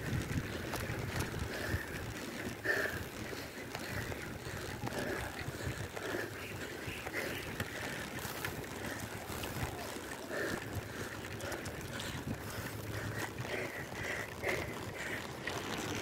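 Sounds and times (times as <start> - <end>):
wind on microphone: 0.0 - 2.1.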